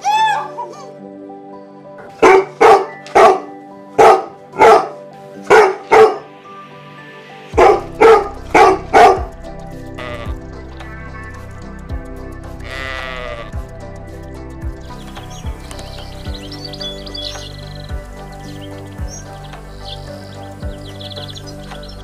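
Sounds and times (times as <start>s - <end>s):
background music: 0.0s - 22.0s
dog barking: 2.2s - 6.3s, 7.6s - 9.3s.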